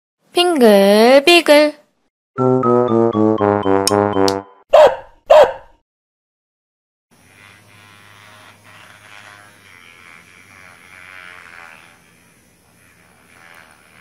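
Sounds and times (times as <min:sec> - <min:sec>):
vibrating massager buzzing: 0:07.1 - 0:14.0.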